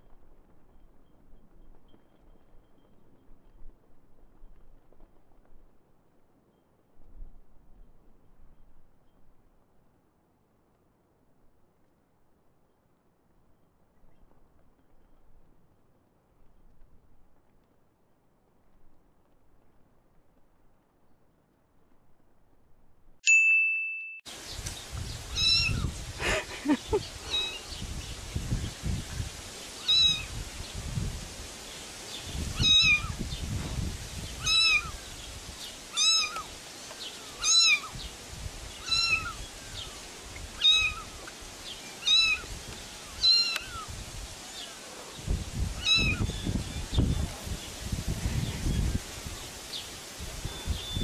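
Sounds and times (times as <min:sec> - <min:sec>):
brief ding: 0:23.2 - 0:24.3
cat meowing: 0:25.4 - 0:25.9, 0:29.8 - 0:30.3, 0:32.6 - 0:33.1, 0:34.5 - 0:34.9, 0:36.0 - 0:36.5, 0:37.4 - 0:37.9, 0:38.8 - 0:39.4, 0:40.6 - 0:41.1, 0:42.0 - 0:42.5, 0:43.2 - 0:43.8, 0:45.8 - 0:46.2.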